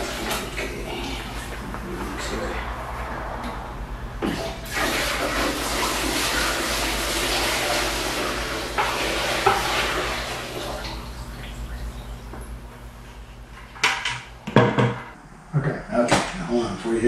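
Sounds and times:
liquid pouring and splashing: 0:04.2 - 0:11.9.

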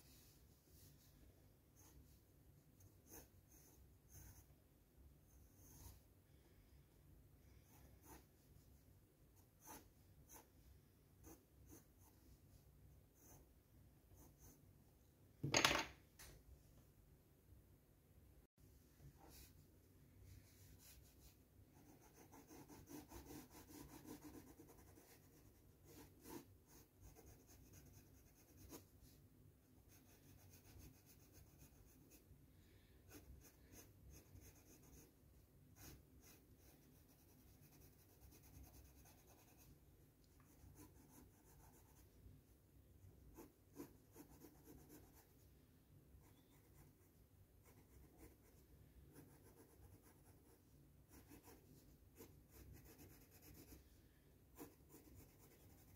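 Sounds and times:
pencil scratching on paper: 0:01.7 - 0:04.5, 0:05.3 - 0:06.1, 0:07.4 - 0:12.5, 0:13.1 - 0:14.6, 0:20.4 - 0:29.2, 0:29.8 - 0:32.3, 0:33.0 - 0:35.1, 0:35.7 - 0:39.8, 0:40.4 - 0:42.2, 0:43.3 - 0:45.4, 0:46.2 - 0:53.8, 0:54.5 - 0:55.9.

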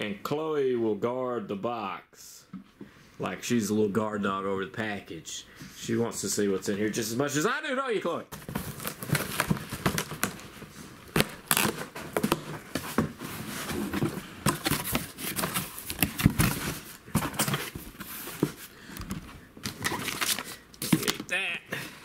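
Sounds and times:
cardboard flaps rustling: 0:08.3 - 0:21.3
packing tape ripping: 0:11.1 - 0:12.3.

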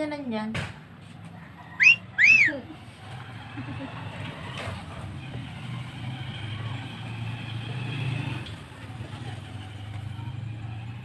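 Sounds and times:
vehicle engine running: 0:02.5 - 0:11.0.

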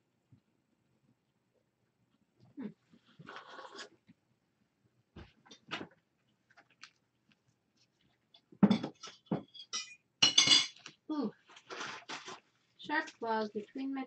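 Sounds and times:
knocks and rustles: 0:08.4 - 0:09.7.

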